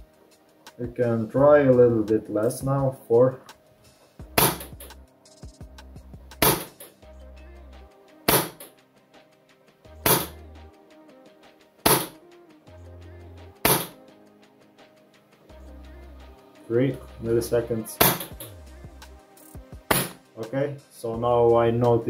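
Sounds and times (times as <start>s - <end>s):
airsoft gun shots: 4.4s - 4.8s, 6.4s - 6.7s, 8.3s - 8.6s, 11.9s - 12.2s, 13.6s - 14.0s, 19.9s - 20.2s.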